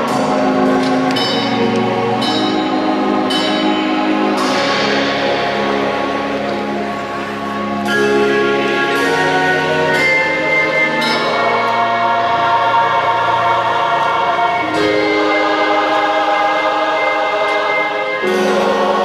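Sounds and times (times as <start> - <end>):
slow music of held chords: 0.0 - 19.0.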